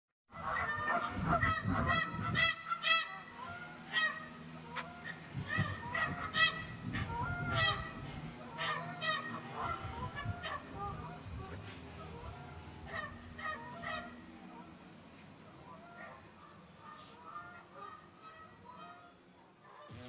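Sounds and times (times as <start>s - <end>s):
geese honking: 0.3s - 20.0s.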